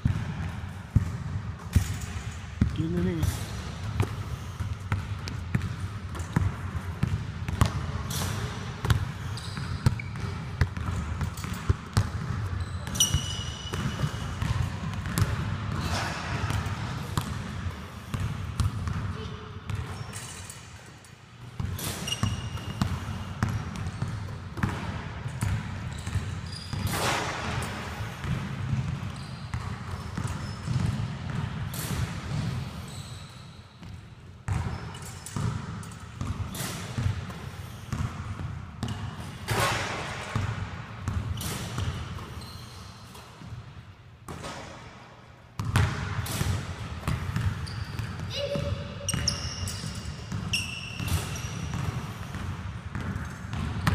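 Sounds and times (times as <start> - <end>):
basketballs bouncing on hardwood: 0.0 - 1.9, 3.8 - 8.0, 8.8 - 16.6, 18.1 - 19.1, 28.2 - 31.6, 45.6 - 49.4, 50.3 - 53.9
ball hitting rim or backboard: 45.6 - 49.4.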